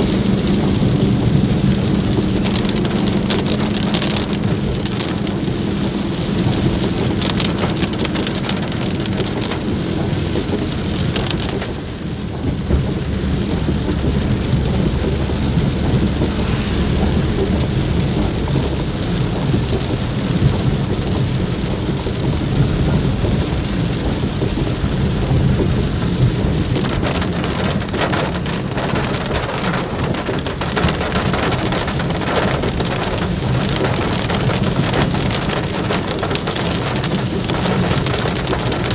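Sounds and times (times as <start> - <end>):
heavy rain on car roof: 0.0 - 38.9.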